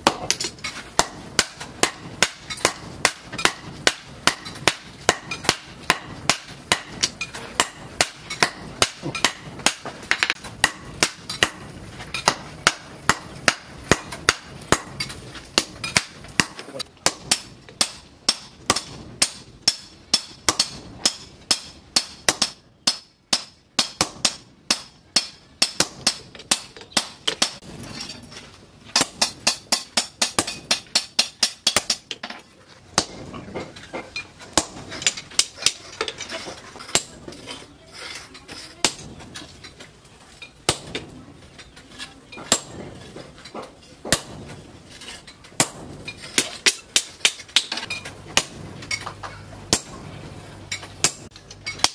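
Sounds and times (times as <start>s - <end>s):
hammer on hot steel: 0.0s - 27.7s, 29.0s - 32.2s, 33.0s - 33.7s, 34.5s - 35.8s, 38.8s - 39.1s, 40.7s - 41.1s, 42.4s - 43.0s, 44.0s - 49.1s, 49.7s - 50.1s, 50.7s - 51.9s
sledgehammer strikes: 0.0s - 28.3s, 28.9s - 37.3s, 38.8s - 39.4s, 40.6s - 41.2s, 42.4s - 51.9s.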